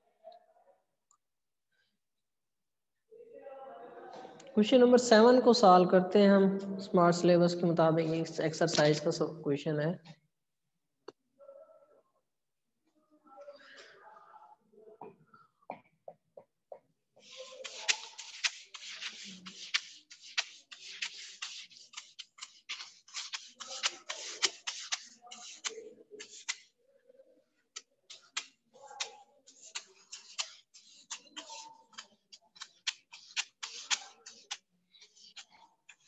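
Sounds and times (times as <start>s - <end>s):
eraser wiping whiteboard: 17.2s - 26.8s, 27.7s - 36.0s.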